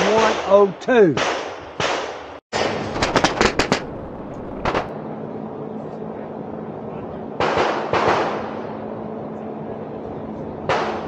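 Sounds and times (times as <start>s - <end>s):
gunshots with echo: 2.8s - 4.9s.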